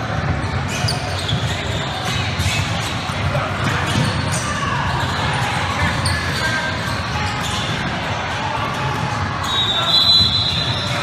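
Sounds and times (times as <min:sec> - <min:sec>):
ball bouncing on court: 0:00.0 - 0:11.0
murmur of spectators: 0:00.0 - 0:11.0
shrill whistle: 0:09.4 - 0:11.0.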